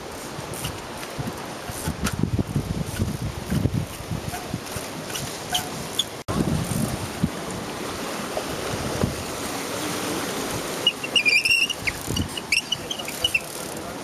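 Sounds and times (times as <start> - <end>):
wind buffeting microphone: 0.0 - 9.6, 11.7 - 13.3
sea washing on rocky shore: 0.0 - 14.0
short high squeaks: 5.1 - 6.2, 10.8 - 13.6.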